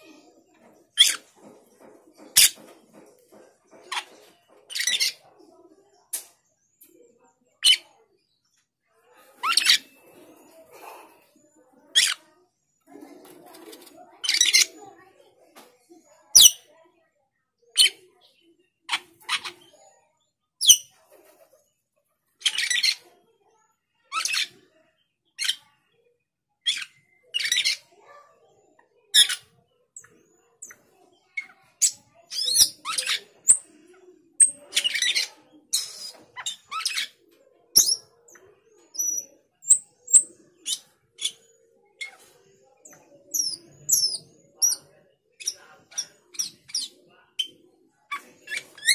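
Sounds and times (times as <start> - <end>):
starling squeaky calls: 1.0 - 1.3, 4.7 - 5.2, 9.4 - 10.0, 12.0 - 12.2, 14.2 - 14.7, 16.4 - 16.6, 20.6 - 20.9, 22.4 - 23.0, 26.7 - 27.8, 29.2 - 29.4, 31.4 - 33.7, 34.4 - 37.2, 37.8 - 42.3, 42.9 - 48.9.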